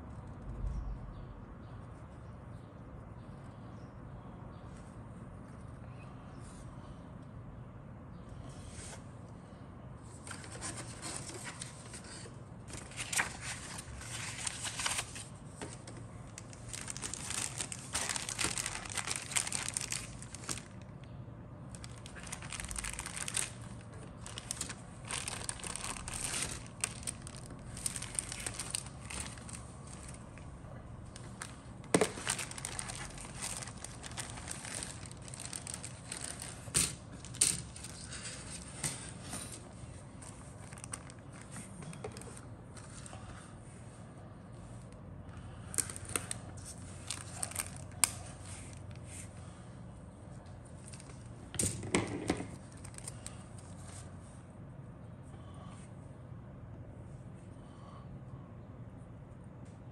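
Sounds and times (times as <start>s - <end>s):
plastic bag crinkling: 12.7s - 20.9s, 21.7s - 38.7s, 40.2s - 43.0s, 45.7s - 49.1s, 50.7s - 53.9s.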